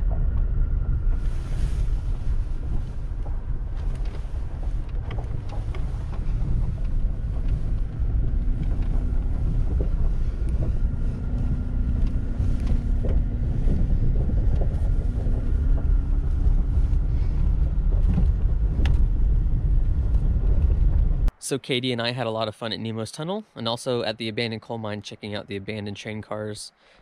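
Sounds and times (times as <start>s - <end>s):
truck engine and tyres on gravel: 0.0s - 21.3s
wind buffeting microphone: 0.0s - 21.4s.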